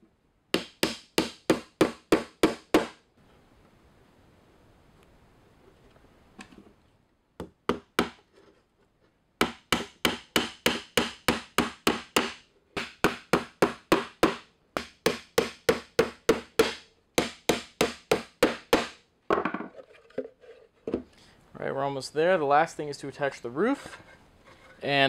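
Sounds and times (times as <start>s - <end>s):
hammer driving nails into wood: 0.6s - 3.0s, 7.4s - 8.2s, 9.4s - 19.0s.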